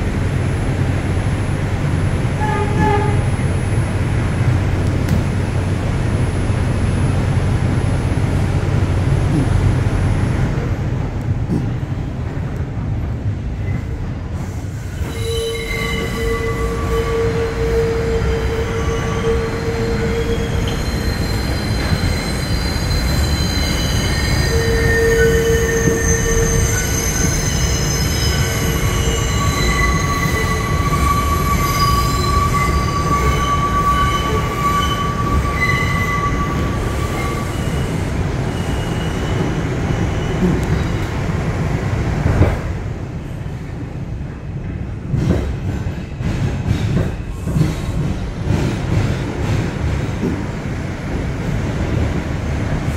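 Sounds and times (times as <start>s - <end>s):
subway wheels rumbling on rail: 0.0s - 52.9s
high metallic squealing: 15.0s - 41.0s.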